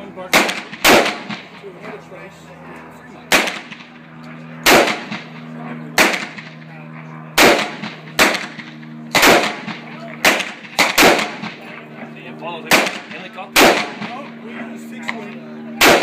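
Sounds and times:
steady low hum: 0.0 - 16.0
rifle firing single shots: 0.3 - 1.4, 4.6 - 5.3, 6.0 - 6.5, 7.4 - 11.6, 12.7 - 14.1, 15.8 - 16.0.

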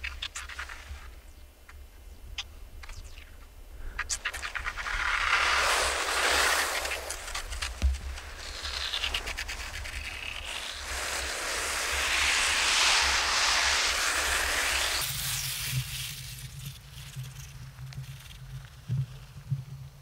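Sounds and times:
wind rumbling on microphone: 2.6 - 20.0
skis scraping over snow: 4.2 - 17.6.

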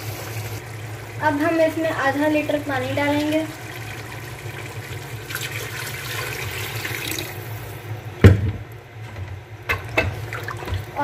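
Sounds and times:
water pouring into a metal pot: 0.1 - 7.6.

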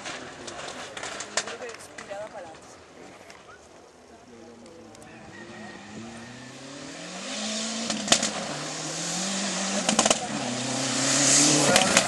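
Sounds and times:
sharp cracks: 0.0 - 2.6, 7.2 - 12.0
rally car engine: 5.3 - 12.0.

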